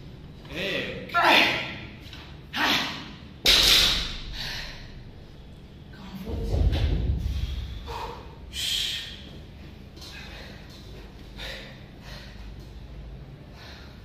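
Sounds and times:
man breathing hard: 0:04.1 - 0:05.2, 0:07.2 - 0:09.4, 0:10.0 - 0:14.0.

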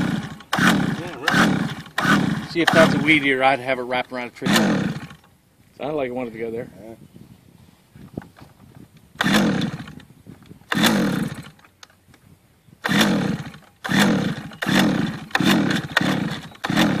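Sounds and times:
recoil starter pulls whirring: 0:00.0 - 0:05.4, 0:09.1 - 0:12.0, 0:12.8 - 0:17.0.

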